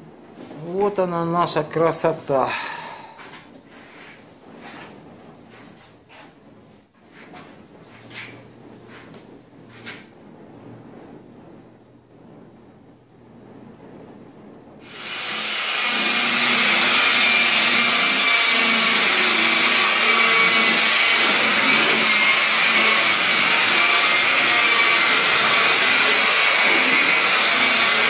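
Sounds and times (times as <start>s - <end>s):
handheld polisher whirring: 14.8s - 28.0s.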